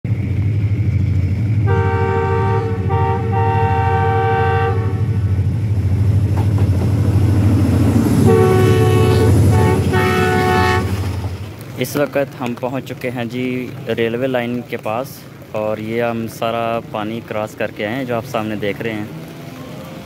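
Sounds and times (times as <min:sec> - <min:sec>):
diesel locomotive engine rumbling: 0:00.0 - 0:20.0
locomotive horn blast: 0:01.6 - 0:05.5, 0:08.2 - 0:11.2.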